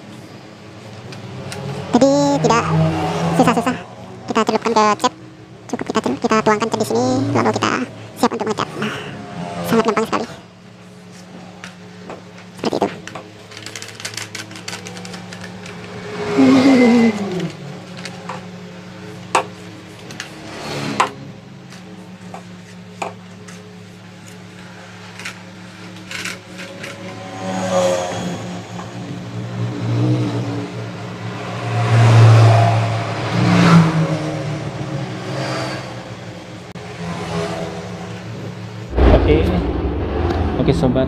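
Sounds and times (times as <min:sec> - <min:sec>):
vehicle engine: 0:00.2 - 0:21.9, 0:24.2 - 0:41.0
steady low hum: 0:01.8 - 0:13.1, 0:38.8 - 0:41.0.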